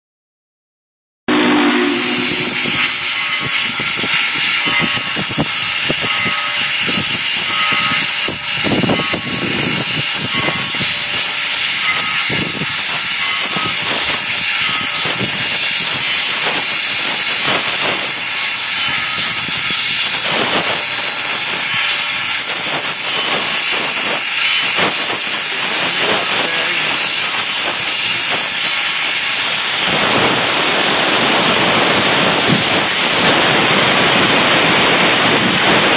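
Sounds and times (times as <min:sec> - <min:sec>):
loud steam hiss: 0:01.3 - 0:35.9.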